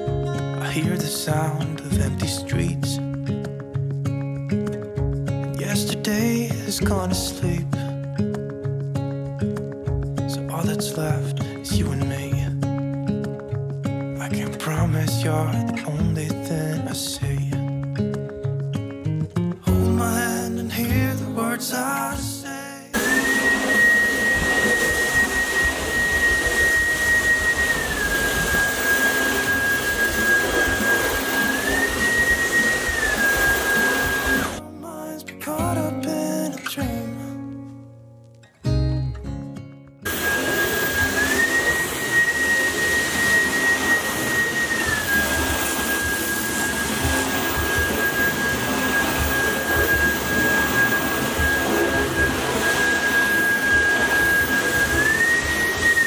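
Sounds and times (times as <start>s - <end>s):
stick vacuum whining: 22.9s - 34.6s, 40.0s - 56.0s.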